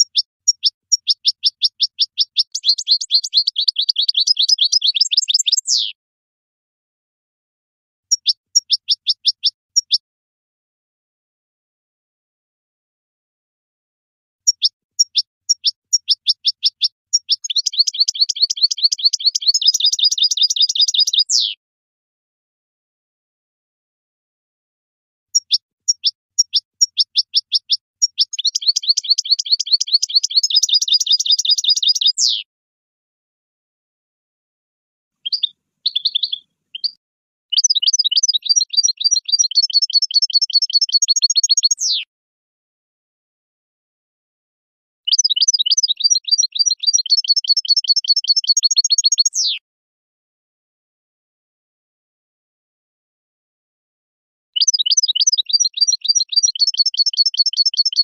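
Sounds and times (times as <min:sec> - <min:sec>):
goldfinch singing: 0:00.0 - 0:06.0, 0:08.1 - 0:10.0, 0:14.4 - 0:21.6, 0:25.3 - 0:32.5, 0:35.2 - 0:42.1, 0:45.1 - 0:49.6, 0:54.6 - 0:58.0.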